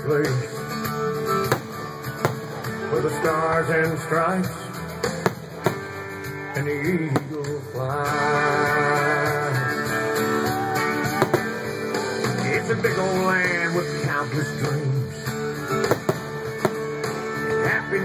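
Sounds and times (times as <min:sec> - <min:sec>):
guitar music: 0:00.4 - 0:18.0
sharp bangs: 0:01.4 - 0:02.7, 0:05.1 - 0:06.2, 0:07.1 - 0:07.6, 0:11.2 - 0:11.9, 0:15.8 - 0:17.2.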